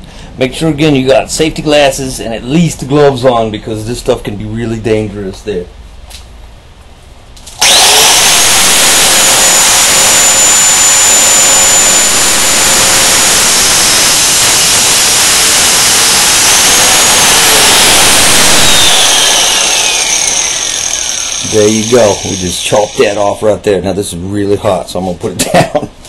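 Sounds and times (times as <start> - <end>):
angle grinder cutting steel: 7.6 - 23.3.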